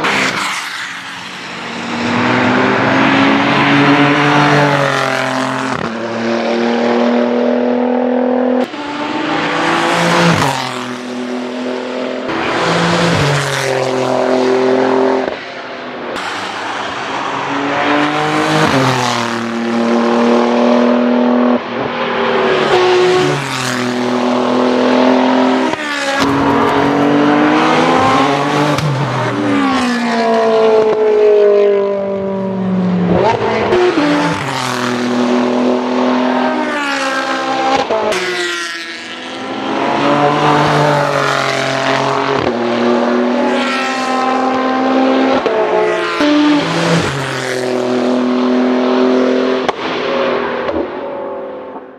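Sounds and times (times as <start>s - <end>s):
race car accelerating through gears: 16.1s - 51.0s.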